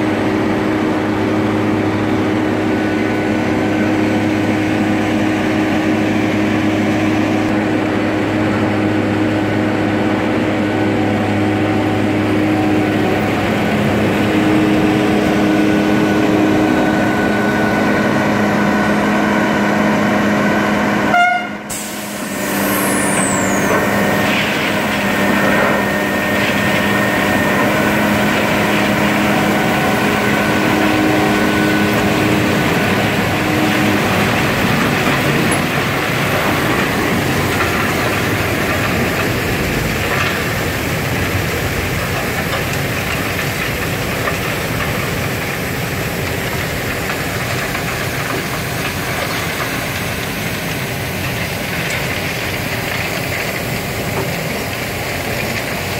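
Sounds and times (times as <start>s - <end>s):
engines and hydraulic machinery droning: 0.0s - 55.9s
layered machine whines: 21.7s - 41.0s.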